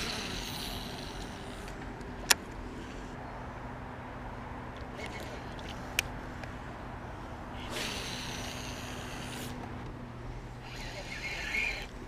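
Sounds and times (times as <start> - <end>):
fishing reel line whirring: 0.0 - 1.8, 4.9 - 6.0, 7.6 - 9.7, 10.6 - 12.0
electric motor humming: 0.0 - 2.1, 7.2 - 12.0.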